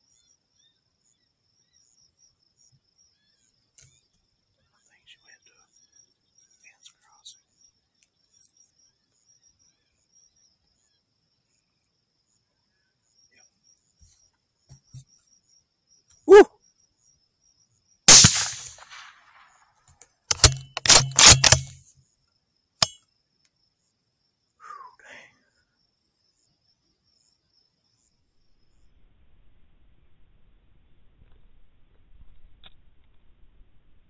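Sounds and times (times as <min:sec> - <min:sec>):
short call: 0:16.3 - 0:16.5
rifle shot: 0:18.1 - 0:19.5, 0:20.3 - 0:21.8.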